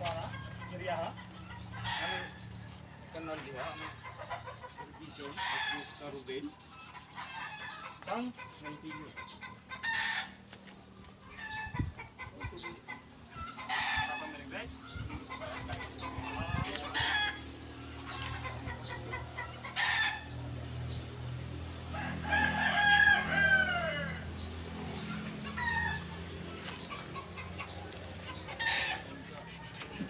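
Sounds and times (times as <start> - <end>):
chicken calls: 0.0 - 20.3, 24.8 - 30.0
rooster crowing: 21.9 - 24.3.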